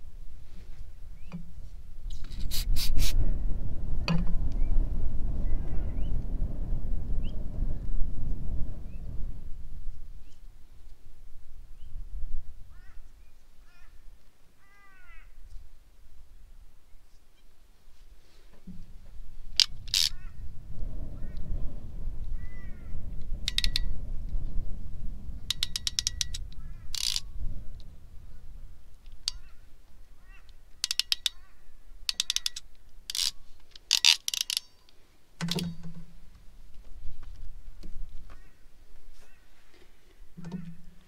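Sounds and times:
low rumble: 0:03.1 - 0:09.9
metallic ratchet clicks: 0:23.5 - 0:23.9, 0:25.5 - 0:27.3, 0:30.8 - 0:31.4, 0:32.1 - 0:35.8.

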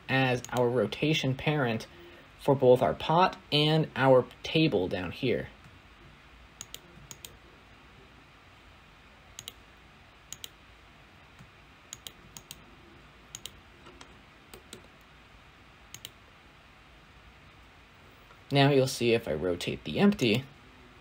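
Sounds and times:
computer mouse clicks: 0:06.6 - 0:07.4, 0:09.4 - 0:09.6, 0:10.3 - 0:10.6, 0:11.4 - 0:12.6, 0:13.3 - 0:15.0, 0:15.9 - 0:16.2.

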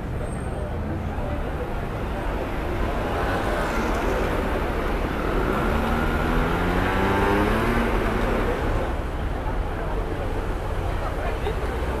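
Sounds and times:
low street traffic: 0:00.0 - 0:12.0.

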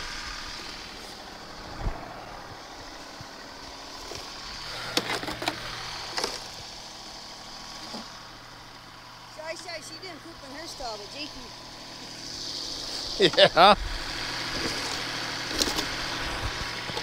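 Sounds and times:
tractor diesel engine idling: 0:00.0 - 0:17.0
shovel scraping frozen manure: 0:14.5 - 0:17.0.

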